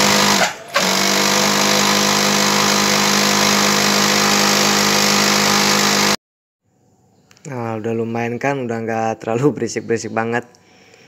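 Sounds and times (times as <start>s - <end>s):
sewing machine whirring: 0.0s - 6.2s.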